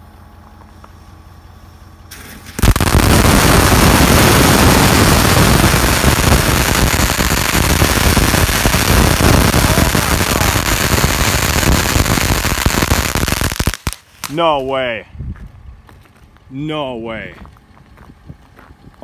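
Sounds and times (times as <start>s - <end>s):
firework fountain crackling pops: 2.1s - 14.5s.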